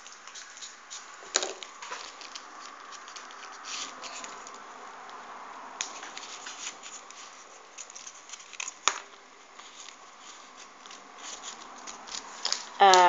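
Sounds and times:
paper rustling and clicking: 0.0s - 4.6s, 5.8s - 13.0s
sharp paper click: 10.6s - 13.0s.

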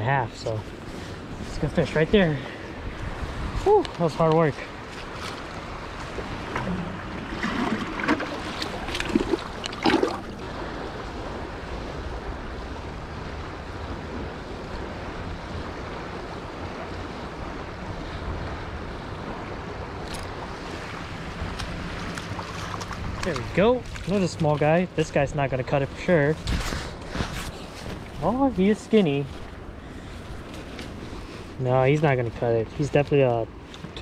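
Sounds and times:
river rushing: 0.0s - 11.7s, 12.8s - 32.9s
wind on microphone: 0.0s - 24.2s, 24.9s - 32.4s
boots stepping on grassy bank: 20.9s - 24.8s.

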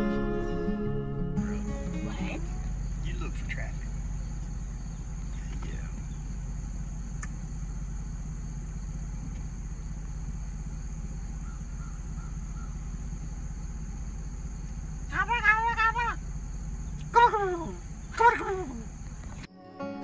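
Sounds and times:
low even rumble: 0.0s - 19.5s
insects droning: 1.4s - 20.0s
faint click: 7.2s - 7.4s.

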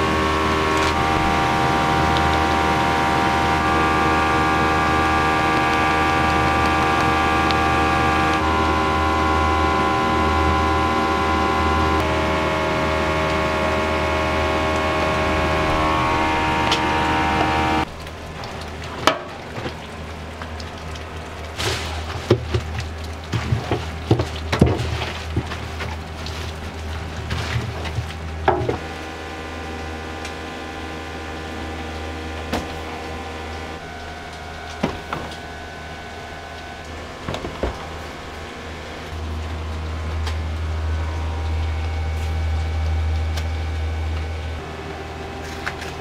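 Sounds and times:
steady many-toned hum: 0.0s - 46.0s.

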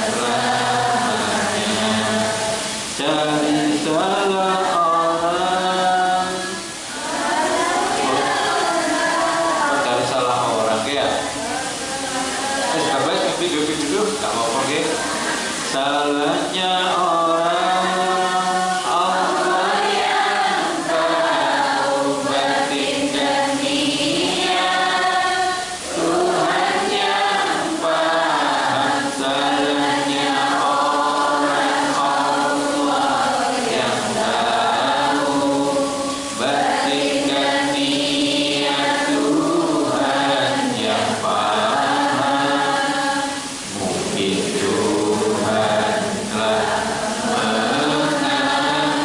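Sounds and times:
man chanting into microphone: 0.0s - 6.8s, 9.6s - 11.4s, 12.6s - 19.6s, 27.8s - 49.0s
congregation singing: 0.0s - 49.0s.

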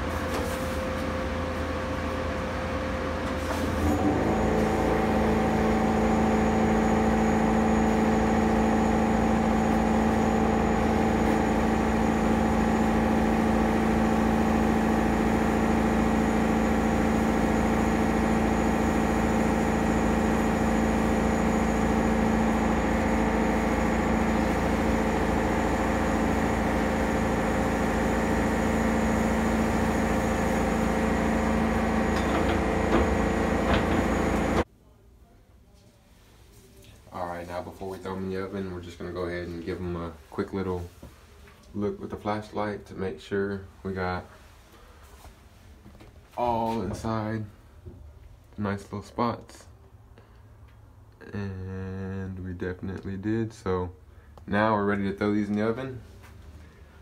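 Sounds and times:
steady machine hum: 0.0s - 34.7s.

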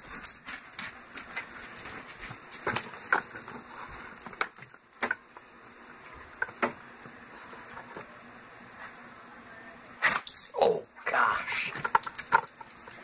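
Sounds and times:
food containers clicking and knocking: 0.0s - 5.3s, 11.7s - 13.0s.

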